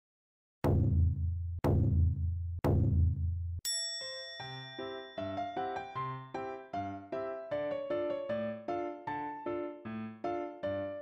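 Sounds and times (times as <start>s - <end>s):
light piano tune: 4.0s - 11.0s.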